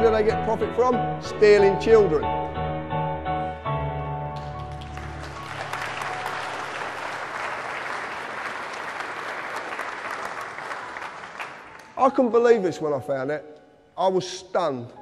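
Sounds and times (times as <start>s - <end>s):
music cue: 0.0s - 7.2s
audience applauding: 4.4s - 12.0s.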